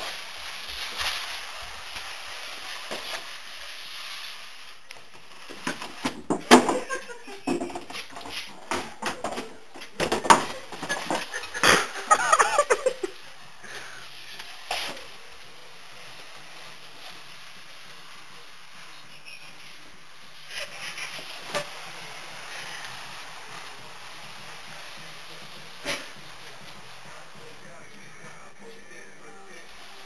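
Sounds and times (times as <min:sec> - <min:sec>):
cardboard box scraping across floor: 0:00.0 - 0:06.3, 0:07.5 - 0:28.6
box knocking and bumping: 0:05.6 - 0:11.8
people laughing: 0:06.8 - 0:07.5, 0:10.9 - 0:13.2.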